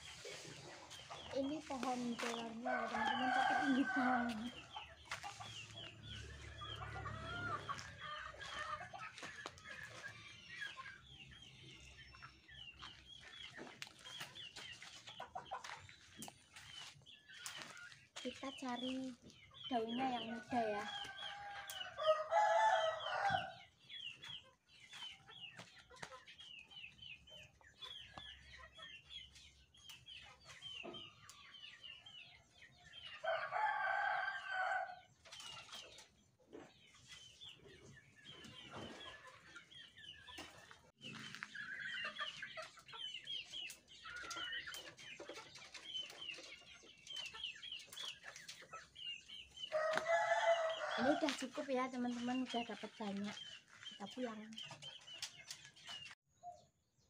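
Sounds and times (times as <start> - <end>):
chickens clucking: 0.0 - 56.2
rooster crowing: 2.7 - 4.5, 21.3 - 23.6, 49.7 - 51.2.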